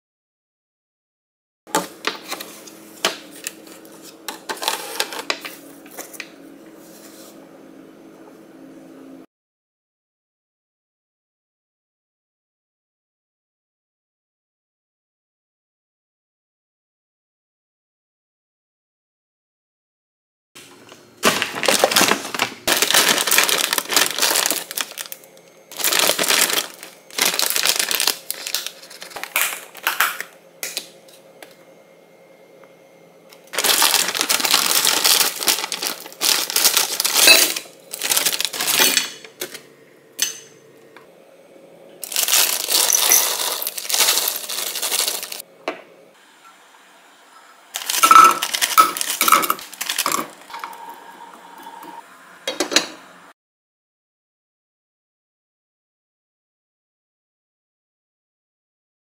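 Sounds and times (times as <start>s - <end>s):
plastic food bag crinkling: 4.5s - 6.2s, 21.2s - 30.3s, 33.4s - 39.6s, 42.0s - 45.4s, 47.8s - 50.7s.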